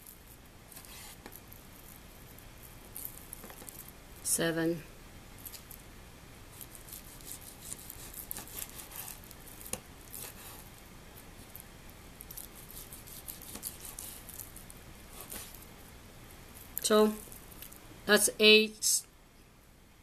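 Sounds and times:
knife slicing meat on board: 6.6s - 10.5s, 12.5s - 14.2s.

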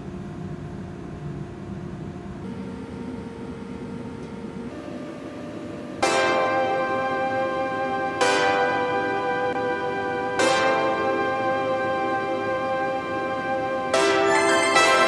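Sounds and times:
loud music: 6.0s - 15.0s.

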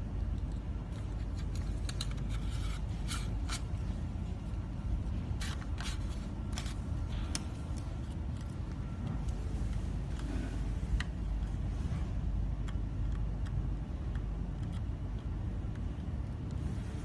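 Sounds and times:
low background rumble: 0.0s - 17.0s
plastic parts clicking and scraping: 0.3s - 3.8s, 5.4s - 11.6s.

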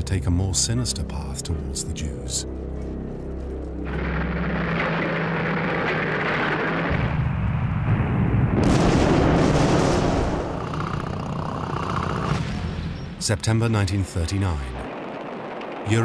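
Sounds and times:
explosions and artillery blasts: 3.9s - 11.2s.

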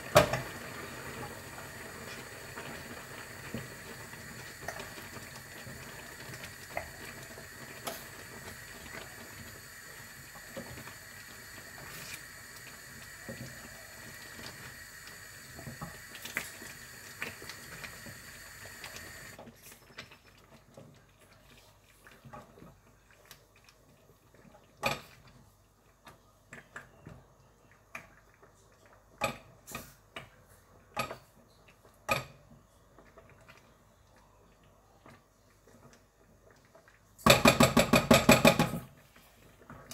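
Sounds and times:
gas stove hiss: 0.0s - 19.4s
wooden spoon stirring in saucepan: 18.8s - 29.2s
spoon knocking against pot: 37.3s - 38.8s.

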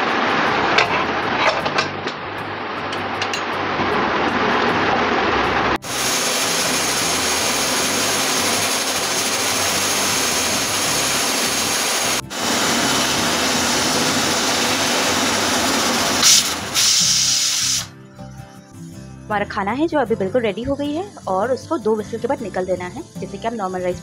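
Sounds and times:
pressure cooker steam hissing: 5.8s - 17.9s.

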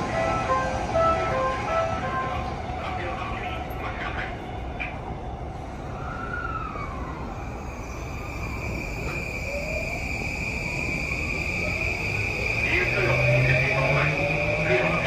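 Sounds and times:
train rumble: 0.0s - 15.0s
electric train motors whining: 7.4s - 15.0s.

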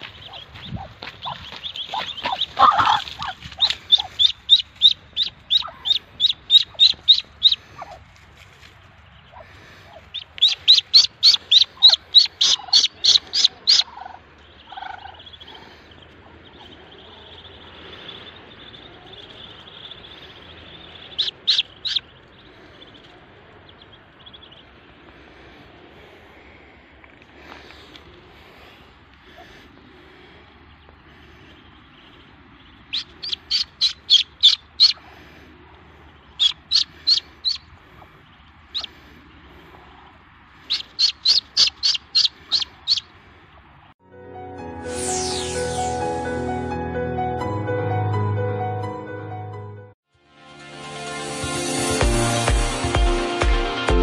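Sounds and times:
duckling peeping: 0.0s - 25.1s, 28.6s - 43.8s.

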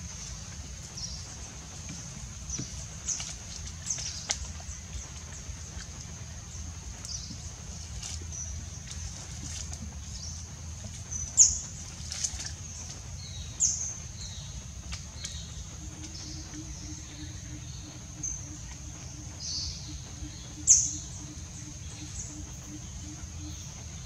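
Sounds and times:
low pulsing call: 14.8s - 24.0s.

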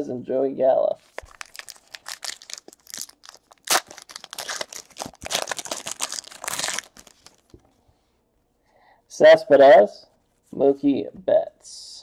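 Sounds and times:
wrapper crinkling: 1.0s - 7.6s.

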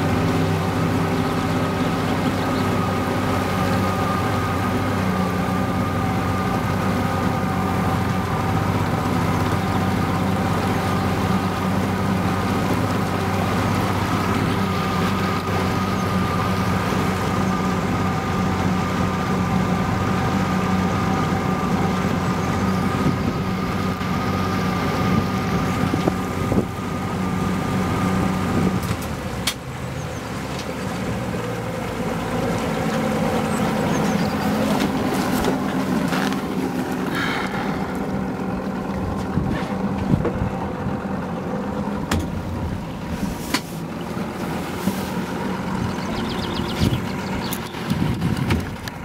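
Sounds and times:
motorboat engine running: 0.0s - 49.0s
water noise: 0.0s - 49.0s
wind: 0.0s - 49.0s.

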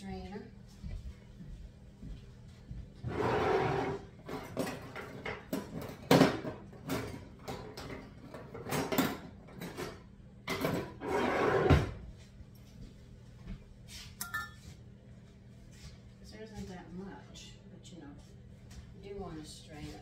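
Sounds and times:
utensils clattering in drawer: 4.2s - 11.4s.

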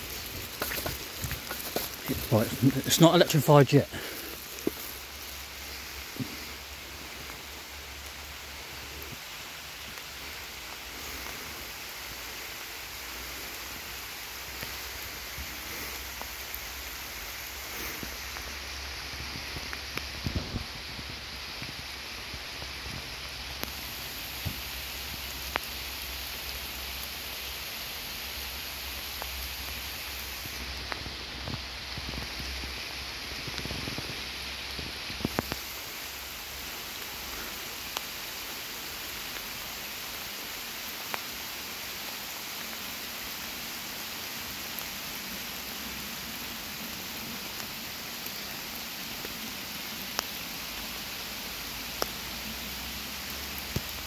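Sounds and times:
heavy rain hissing: 0.0s - 54.0s.

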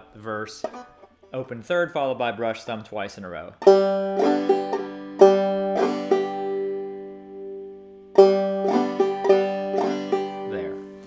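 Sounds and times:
clawhammer banjo: 0.4s - 1.9s, 3.6s - 11.0s.

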